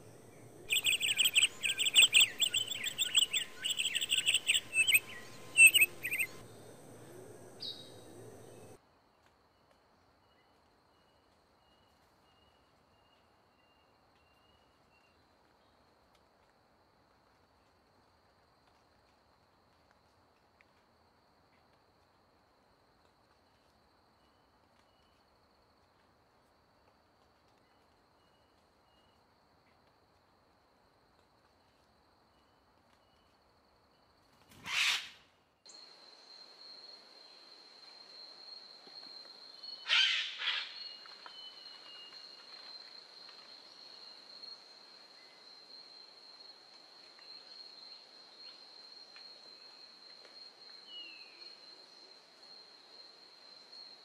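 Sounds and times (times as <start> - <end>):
high-pitched insect drone: 0.0 - 8.7
short bird calls: 0.7 - 6.4.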